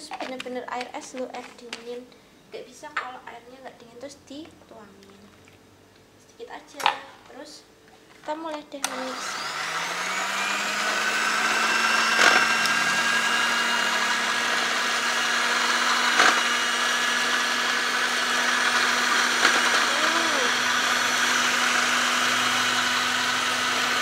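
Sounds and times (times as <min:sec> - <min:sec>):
electric hand mixer running: 0:08.8 - 0:24.0.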